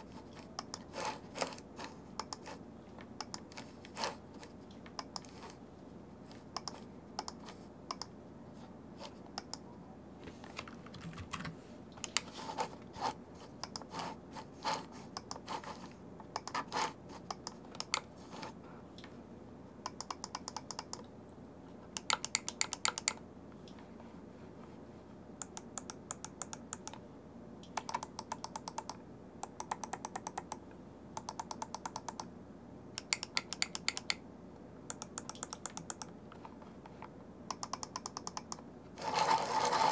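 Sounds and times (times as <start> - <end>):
scroll wheel ticking: 31.2 - 32.3, 34.9 - 36.1, 37.5 - 38.6.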